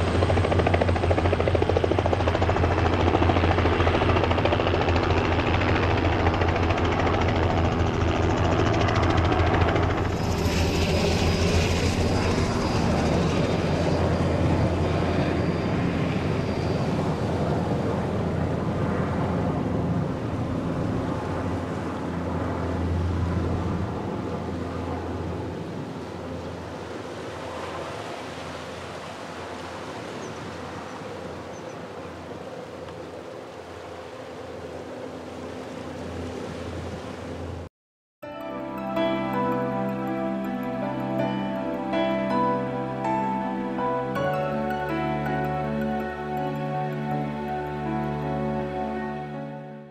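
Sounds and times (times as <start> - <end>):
helicopter rotor beat: 0.0 - 29.6, 38.6 - 49.3
high turbine whine: 0.0 - 37.6.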